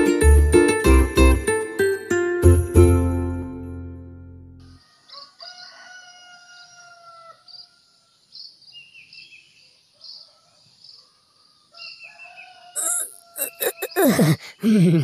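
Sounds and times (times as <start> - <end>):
rooster crowing: 4.8 - 8.1, 11.7 - 13.9
small birds chirping: 7.4 - 15.0.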